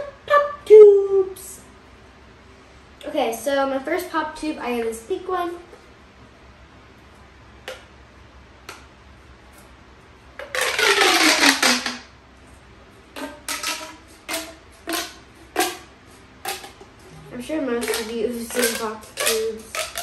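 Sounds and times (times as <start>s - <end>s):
plastic tube popping: 7.6s - 8.0s, 8.6s - 9.8s, 10.4s - 12.1s, 13.1s - 20.0s
plastic tube zipping: 10.4s - 12.1s, 13.1s - 20.0s.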